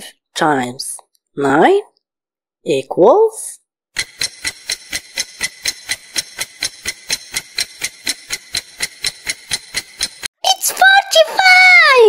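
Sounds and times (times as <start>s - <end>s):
timer ticking: 4.0s - 10.3s.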